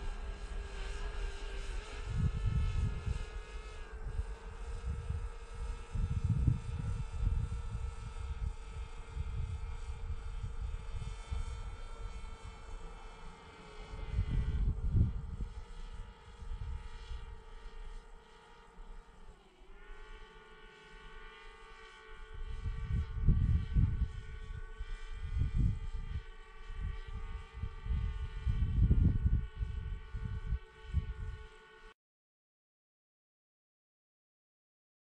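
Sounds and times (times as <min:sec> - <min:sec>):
wind buffeting microphone: 0:01.9 - 0:03.4, 0:04.0 - 0:12.8, 0:13.9 - 0:16.9, 0:22.4 - 0:31.5.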